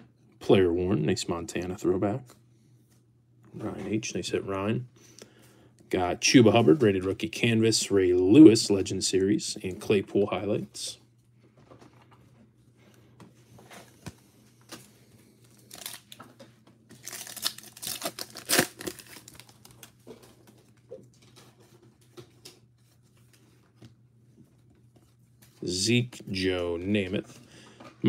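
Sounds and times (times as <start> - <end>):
wrapper and cards rustling: 13.6 - 23.8
foil pack tearing: 15.5 - 16.2, 16.9 - 19.9.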